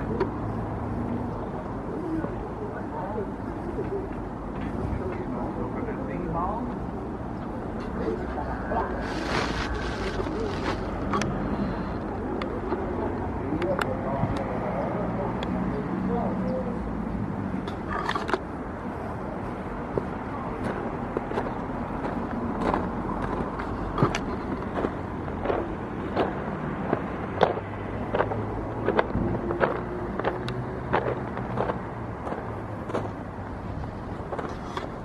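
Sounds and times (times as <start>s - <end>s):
road traffic hum: 0.0s - 35.0s
footsteps walking: 8.9s - 11.1s.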